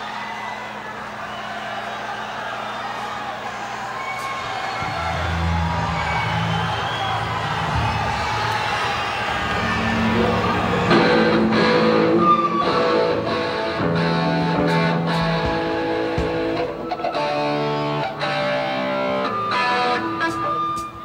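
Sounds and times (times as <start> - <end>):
distorted electric guitar chords: 4.8 - 21.0.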